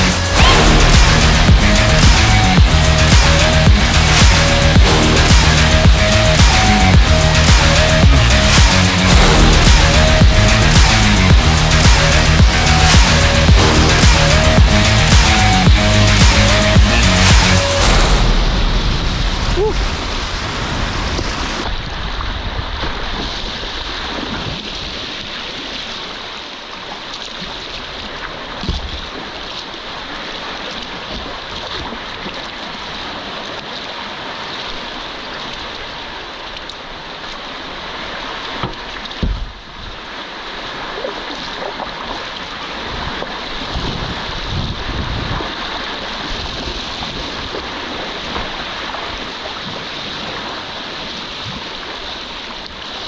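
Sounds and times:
low thumps: 0.0s - 21.7s
river water rushing: 0.0s - 53.0s
wind buffeting microphone: 42.8s - 50.4s.

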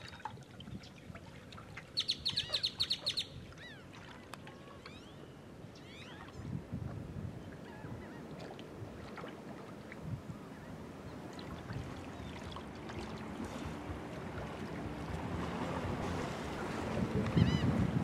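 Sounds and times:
wind and water rumble: 0.0s - 18.0s
faint bird chirps: 4.5s - 6.5s
steady low hum: 10.1s - 18.0s.

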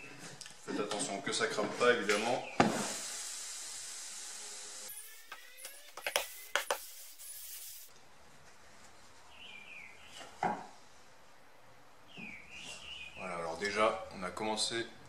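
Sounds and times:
water hissing into steam: 2.7s - 5.2s.

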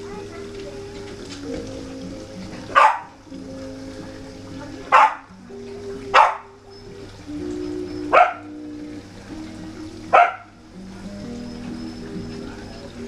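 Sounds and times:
background music: 0.0s - 13.0s
dog barking: 2.7s - 3.2s, 4.9s - 5.3s, 6.1s - 6.5s, 8.1s - 8.5s, 10.1s - 10.6s.

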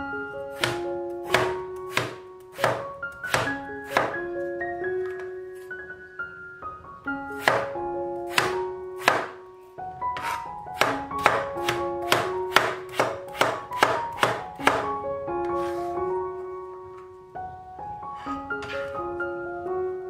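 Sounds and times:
sustained keyboard music: 0.0s - 20.0s
cleaver chopping on cutting board: 0.6s - 4.2s, 7.4s - 7.7s, 8.3s - 9.3s, 10.2s - 14.8s.

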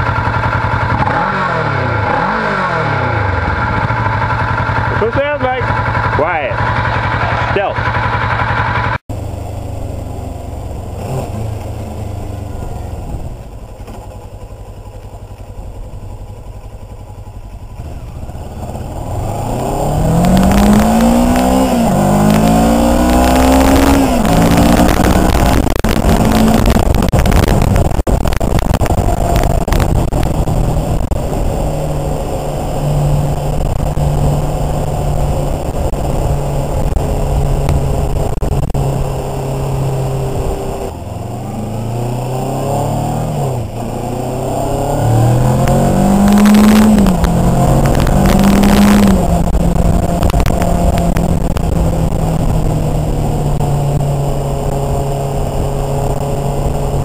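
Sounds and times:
motorcycle engine accelerating: 0.0s - 57.0s
wind rushing over microphone: 18.8s - 57.0s.

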